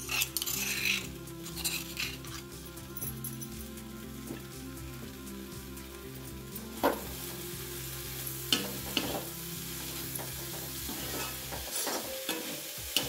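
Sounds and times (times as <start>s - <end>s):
metal spoon scraping pan: 0.0s - 2.6s, 8.5s - 9.3s, 10.5s - 13.0s
peas sizzling in a pan: 0.0s - 13.0s.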